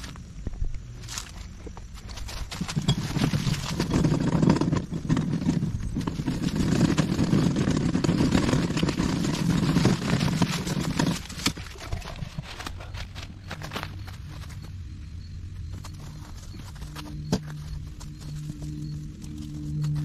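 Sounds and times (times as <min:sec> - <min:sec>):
footsteps crunching through leaves: 0:00.0 - 0:03.7
garden cart rattling over ground: 0:01.0 - 0:14.6, 0:15.6 - 0:20.0.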